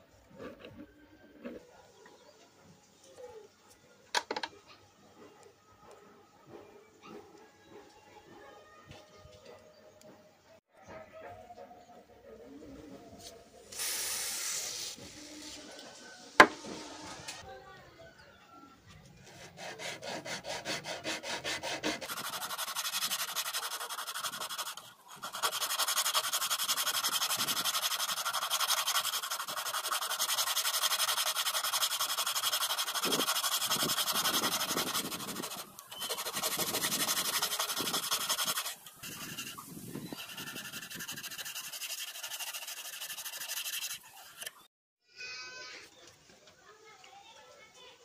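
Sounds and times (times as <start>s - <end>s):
sanding metal: 19.3s - 44.6s.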